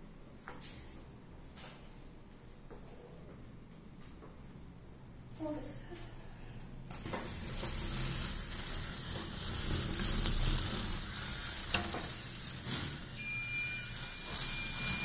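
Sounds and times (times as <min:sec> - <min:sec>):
high-pitched electronic beep: 0:13.2 - 0:15.0.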